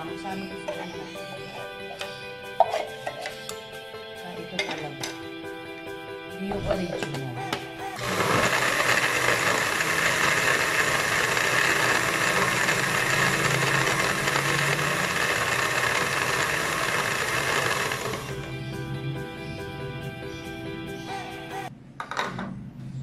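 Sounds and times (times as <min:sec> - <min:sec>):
background music: 0:00.0 - 0:21.8
blender whirring: 0:08.0 - 0:18.5.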